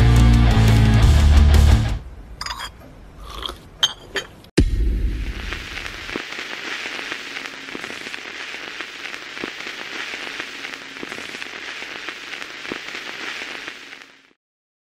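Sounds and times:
crackling hiss: 4.7 - 14.4.

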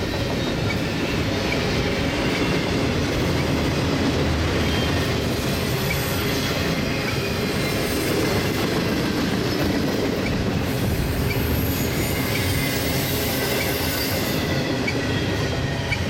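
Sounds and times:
steel wheels rumbling on rails: 0.0 - 16.0
high-pitched wheel squeals: 4.6 - 8.5, 10.2 - 16.0.

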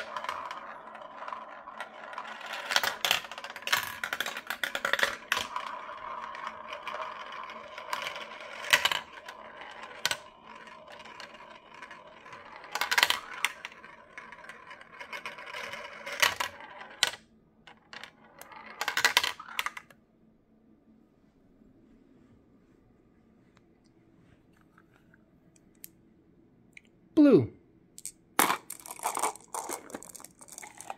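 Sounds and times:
marbles clicking as they drop: 0.0 - 17.2, 18.2 - 19.9, 28.0 - 30.9
marbles rolling down plastic run: 0.0 - 20.0, 28.0 - 30.9.

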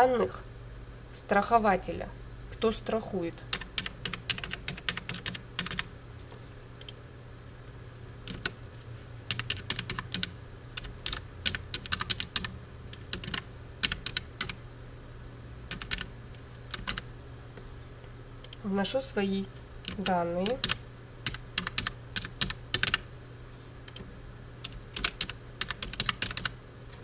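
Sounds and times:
computer keyboard typing: 3.5 - 5.9, 8.2 - 8.6, 9.3 - 14.6, 15.7 - 16.1, 16.7 - 17.0, 19.8 - 23.0, 24.6 - 26.6.

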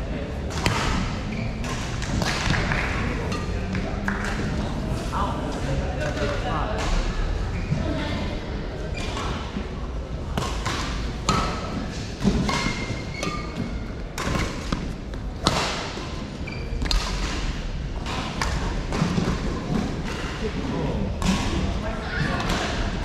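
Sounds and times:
shoes squeaking on court floor: 11.9 - 14.8, 16.4 - 17.0.

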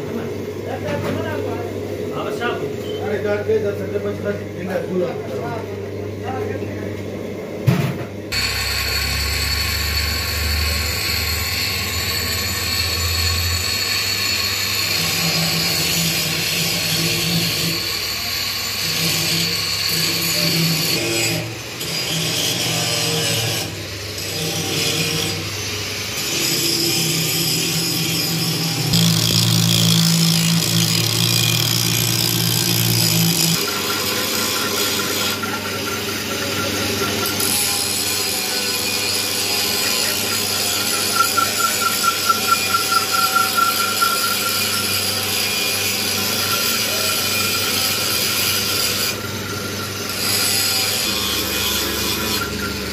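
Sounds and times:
lathe motor humming: 27.7 - 52.9.

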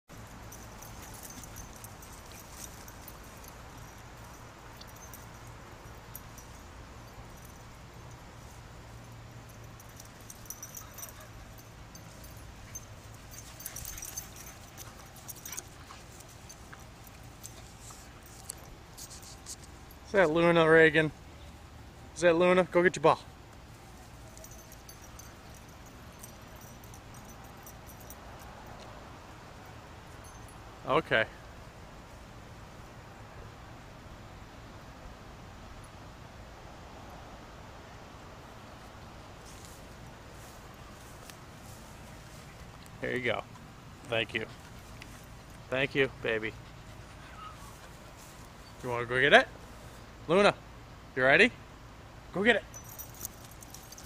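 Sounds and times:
low background noise: 0.1 - 54.0
dogs scuffling on grass: 0.2 - 20.4, 39.4 - 50.1.

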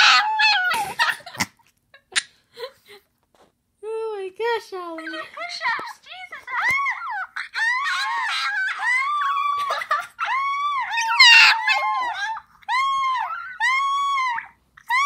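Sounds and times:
dog howling: 0.0 - 0.8, 6.5 - 15.0.

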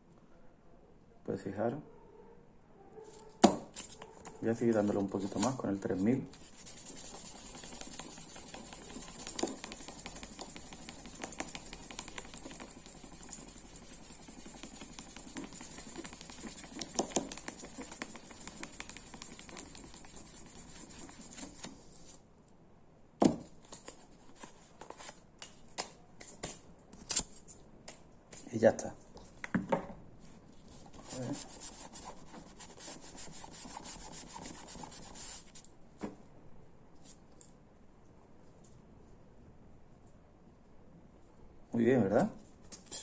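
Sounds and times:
sandpaper scratching on plastic: 4.6 - 22.2, 30.8 - 35.6.

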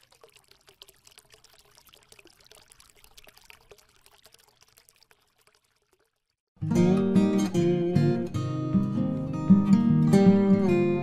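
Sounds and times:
watery fizzing crackle: 0.0 - 6.5.

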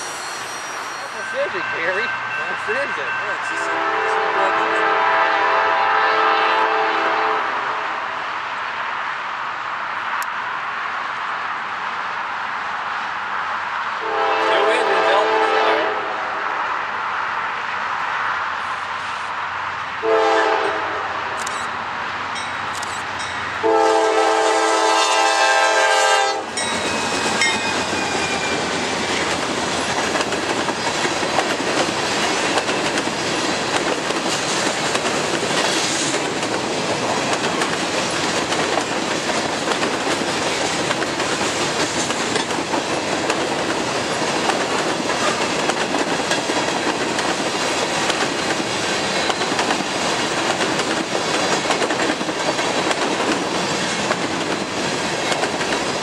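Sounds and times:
train wheels on rails: 0.0 - 56.0
train air horn blasts: 3.5 - 8.1, 14.0 - 16.4, 20.0 - 21.4, 23.6 - 27.1.

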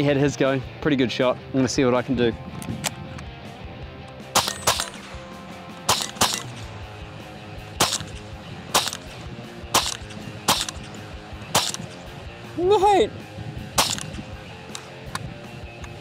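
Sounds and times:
rifle shots: 4.3 - 6.8, 7.8 - 12.1, 13.8 - 14.9.

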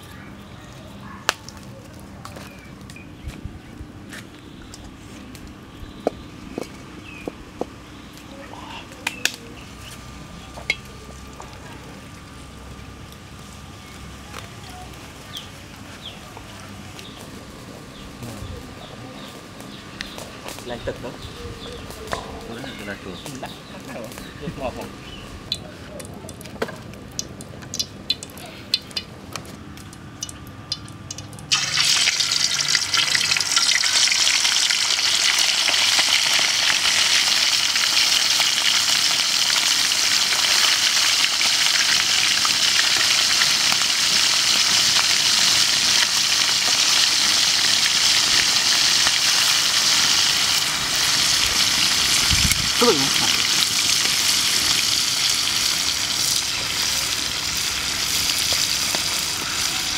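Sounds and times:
meat deep-frying in oil: 24.6 - 59.9.

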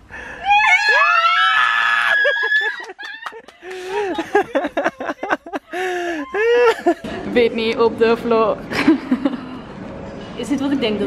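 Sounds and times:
woman screaming with joy: 0.4 - 3.4, 5.8 - 7.0
woman laughing and squealing: 0.4 - 7.1.

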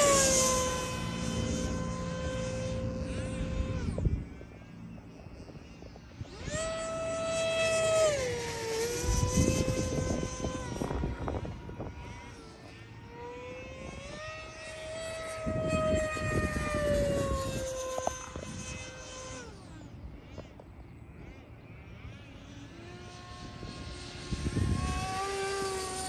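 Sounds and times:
electric jet whining past: 0.0 - 26.0.

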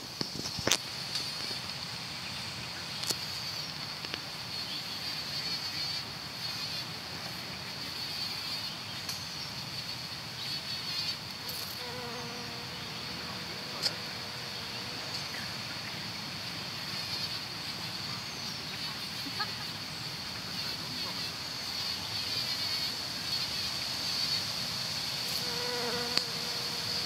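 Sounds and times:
bumblebee buzzing: 10.7 - 15.6, 25.2 - 27.0
high-pitched insect drone: 20.5 - 27.0.

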